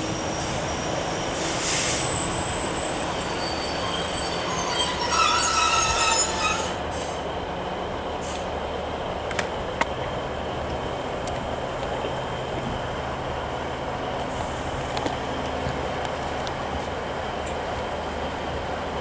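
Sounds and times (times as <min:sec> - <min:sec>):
high metallic squeal: 0:00.0 - 0:06.8
train diesel engine humming: 0:00.0 - 0:19.0.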